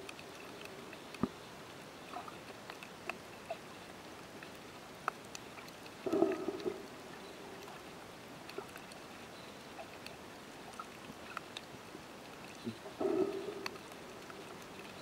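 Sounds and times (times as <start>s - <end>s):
sharp underwater clicks: 0.0s - 15.0s
underwater low hiss: 5.9s - 8.7s, 12.7s - 14.7s.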